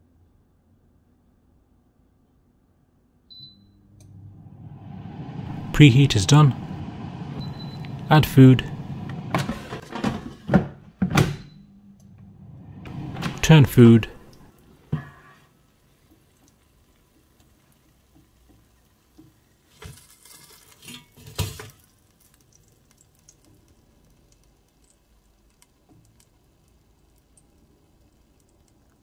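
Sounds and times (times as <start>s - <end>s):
breaded chicken rustling and crackling: 16.2s - 28.8s.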